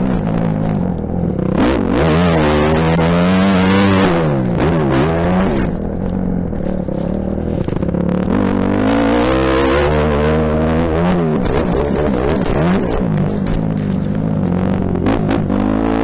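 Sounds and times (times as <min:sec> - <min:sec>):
motocross bike engine revving: 0:00.0 - 0:16.0.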